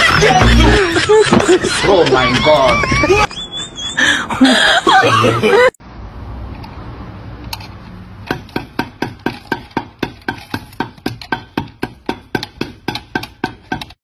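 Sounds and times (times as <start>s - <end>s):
claw hammer striking: 8.3s - 14.0s.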